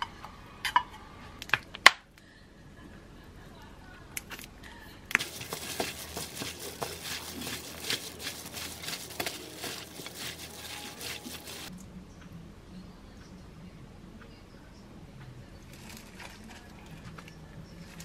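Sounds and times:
plastic glove crinkling rustle: 5.1 - 11.7.

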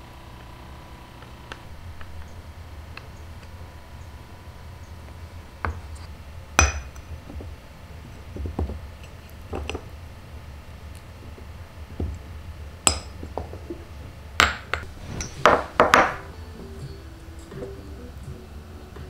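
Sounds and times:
glass clinking: 6.6 - 7.0, 14.4 - 16.3
berries knocking into ceramic bowl: 14.4 - 16.3.

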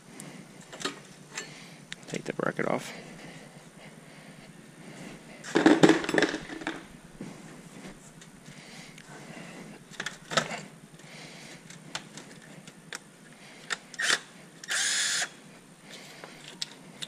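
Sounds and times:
cordless driver whirring: 13.7 - 15.4.

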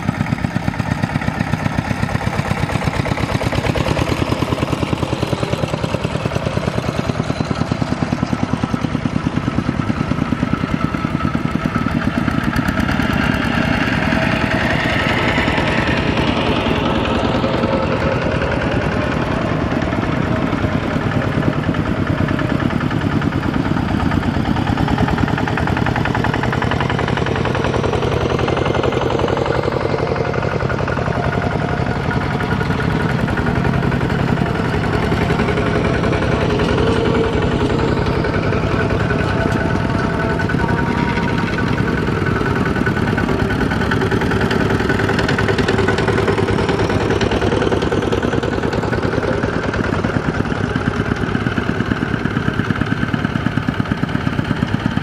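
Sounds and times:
diesel tractor engines running: 0.0 - 55.0.

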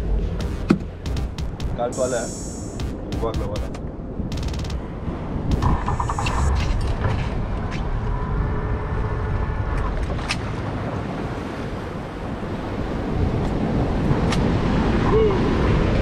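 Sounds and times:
clicks and knocks: 2.7 - 4.8.

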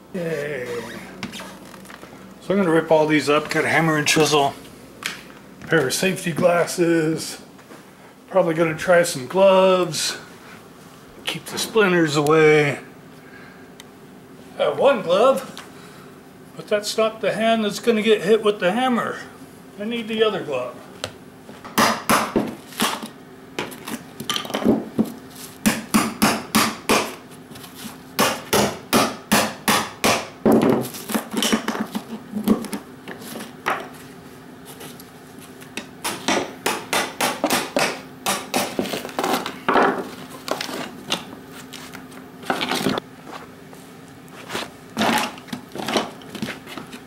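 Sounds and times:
hammer striking a chisel: 21.8 - 23.0, 25.6 - 27.2, 28.2 - 30.7, 36.0 - 38.9.

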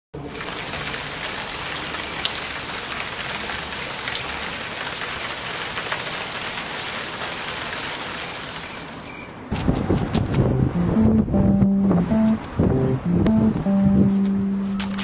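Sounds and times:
rain falling on shrubs: 0.3 - 9.1.

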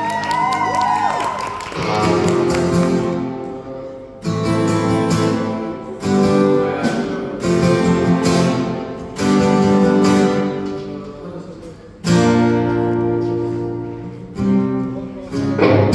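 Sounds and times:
acoustic guitar strumming chords: 1.8 - 11.1, 12.0 - 15.9.

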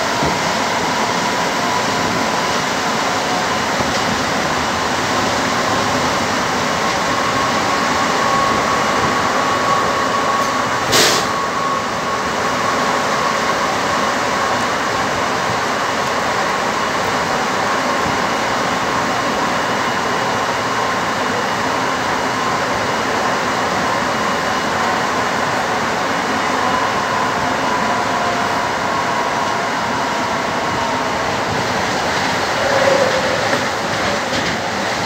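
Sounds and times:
train rolling rumble: 0.0 - 35.0.

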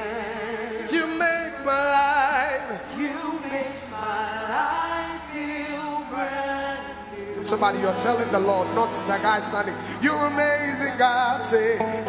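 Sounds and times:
person singing with vibrato: 0.0 - 12.0
held musical tones: 5.4 - 12.0.

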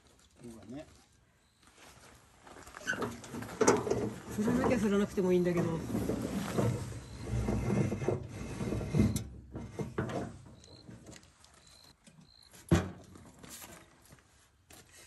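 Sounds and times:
shuffling and rustling: 0.0 - 8.9.

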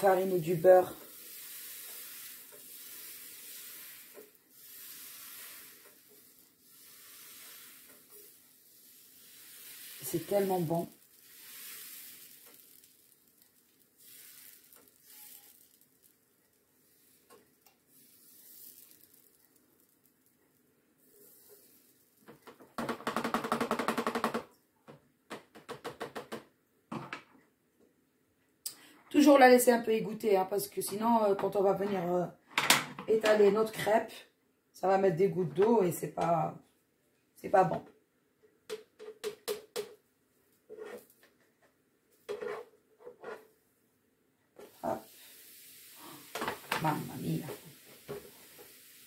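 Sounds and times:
batter sizzling faintly: 0.0 - 22.3, 44.6 - 49.0
spreader scraping hiss: 1.2 - 6.1, 6.7 - 8.2.

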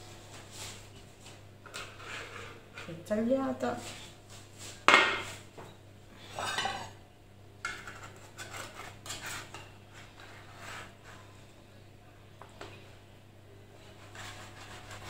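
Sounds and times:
metal utensils scraping baking tray: 1.7 - 3.0, 7.7 - 11.3.

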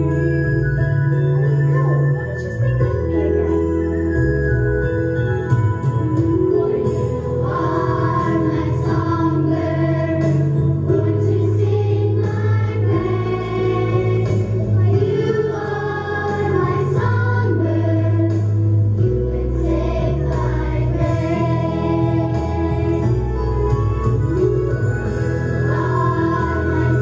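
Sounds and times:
instrumental accompaniment: 0.0 - 27.0
children's chorus singing: 7.4 - 18.6, 19.3 - 23.3, 25.6 - 27.0.

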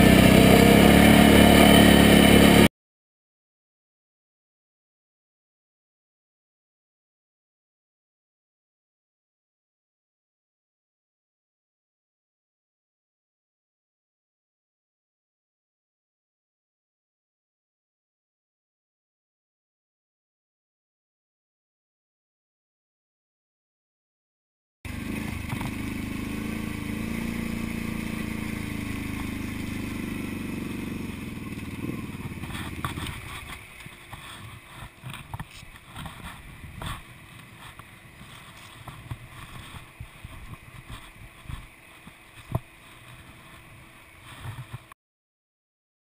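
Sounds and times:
quad engine running: 0.0 - 2.7, 24.9 - 45.0
wind on microphone: 31.7 - 44.9.

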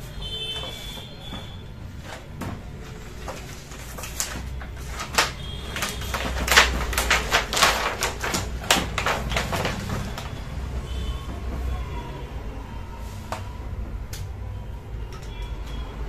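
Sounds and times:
plastic sheet crinkling and crackling: 0.3 - 11.7.

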